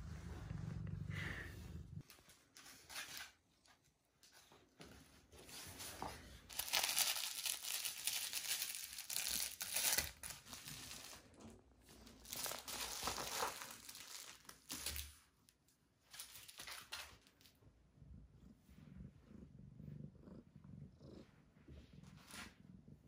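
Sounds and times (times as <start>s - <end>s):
paper crinkling and rustling: 5.4s - 11.4s, 12.0s - 15.2s, 16.1s - 17.4s.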